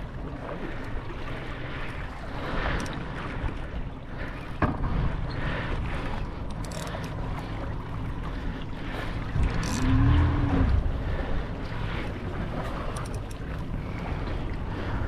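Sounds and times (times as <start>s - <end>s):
wind buffeting microphone: 1.9s - 15.0s
low rumble: 7.2s - 15.0s.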